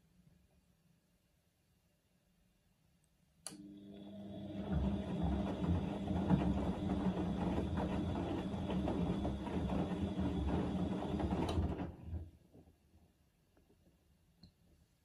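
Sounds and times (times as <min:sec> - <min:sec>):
washing machine drum motor hum: 0:03.6 - 0:12.3.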